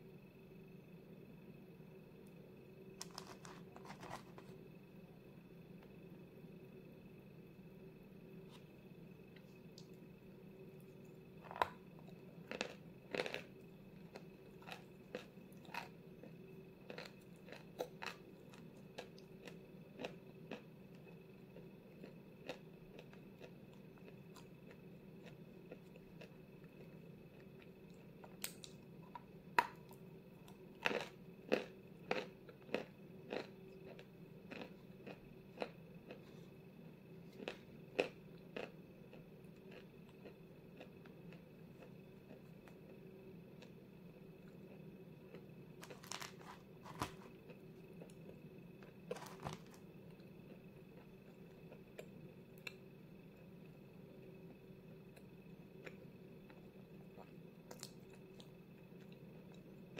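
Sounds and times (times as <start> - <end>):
faint steady hum: 0.0 - 59.9
crunching and chewing: 3.0 - 4.6, 10.6 - 36.6, 37.2 - 43.8, 44.4 - 53.5, 54.4 - 59.9.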